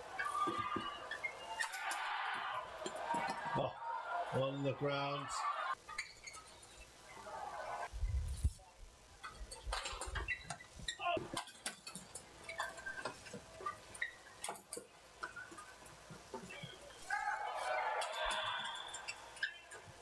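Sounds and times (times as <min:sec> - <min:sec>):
shoes squeaking on court: 0:05.9 - 0:06.7, 0:09.9 - 0:11.0.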